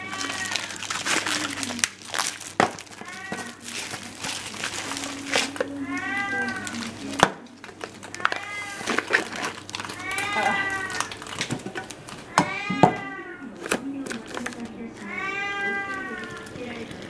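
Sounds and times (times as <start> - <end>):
cat meowing: 0.0 - 1.8, 2.9 - 7.2, 8.0 - 11.2, 12.3 - 13.6, 14.8 - 16.9.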